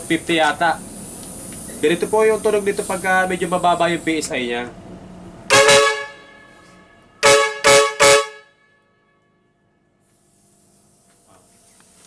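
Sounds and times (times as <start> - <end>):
electric air horn blasts: 5.5 - 9.6.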